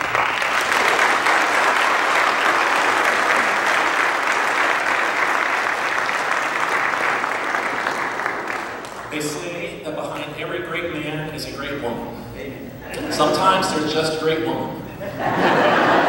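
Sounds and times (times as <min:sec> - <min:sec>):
congregation applauding: 0:00.0 - 0:09.6.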